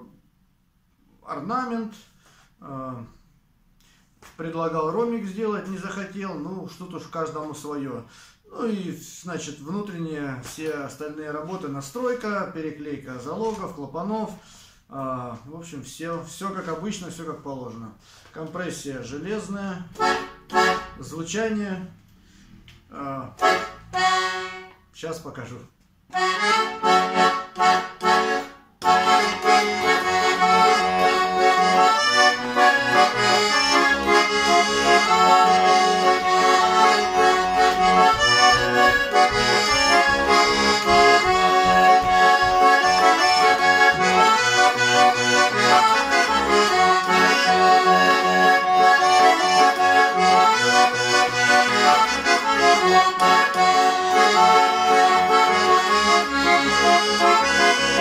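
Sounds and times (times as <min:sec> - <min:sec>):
accordion chords: 0:19.0 - 0:25.3, 0:26.0 - 0:58.0
accordion folk tune: 0:19.1 - 0:25.0, 0:26.1 - 0:58.0.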